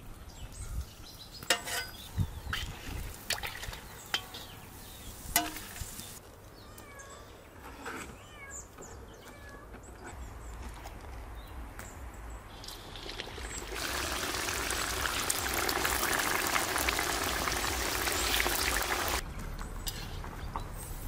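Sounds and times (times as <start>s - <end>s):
metal skimmer clinking: 1.5s - 2.1s, 3.3s - 4.6s
frying oil hissing: 2.8s - 6.2s, 12.6s - 19.2s.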